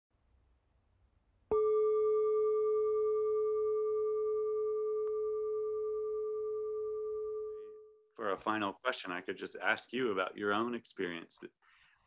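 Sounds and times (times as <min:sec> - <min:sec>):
singing bowl ringing: 0:01.5 - 0:08.1.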